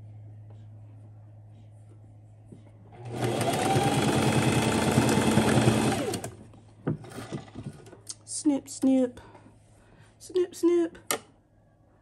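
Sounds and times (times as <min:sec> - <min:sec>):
electric sewing machine stitching: 0:03.0 - 0:06.4.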